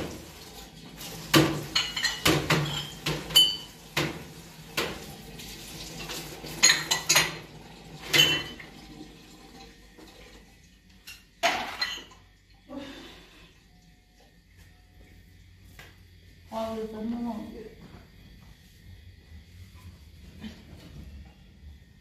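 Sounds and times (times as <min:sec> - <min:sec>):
dishes and utensils clattering: 0:01.2 - 0:05.1, 0:06.0 - 0:08.8, 0:11.0 - 0:12.3.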